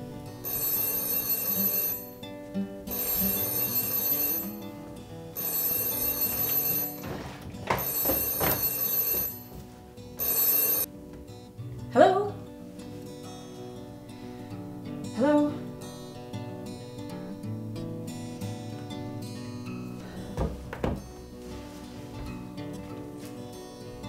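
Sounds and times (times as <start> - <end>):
acoustic guitar music: 0.0 - 24.0
telephone ringing: 0.4 - 2.3, 2.9 - 10.9.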